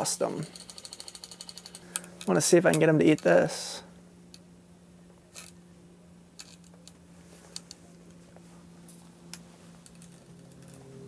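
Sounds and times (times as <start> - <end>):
faint steady hum: 0.0 - 11.0
fishing reel clicks: 0.5 - 2.8.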